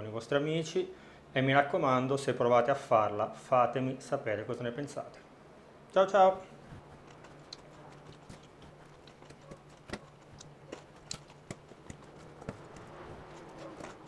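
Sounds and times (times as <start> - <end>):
fork scraping metal bowl: 6.9 - 14.0.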